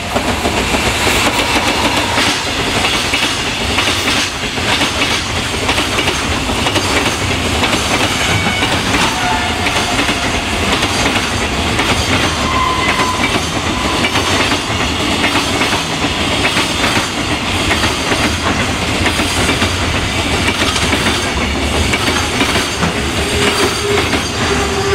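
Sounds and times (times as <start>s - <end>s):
freight train rumbling past: 0.0s - 24.9s.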